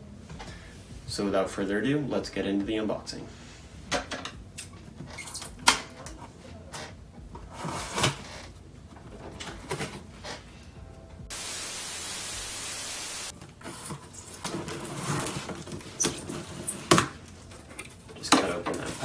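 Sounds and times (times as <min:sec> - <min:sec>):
steady hiss: 0:11.3 - 0:13.3.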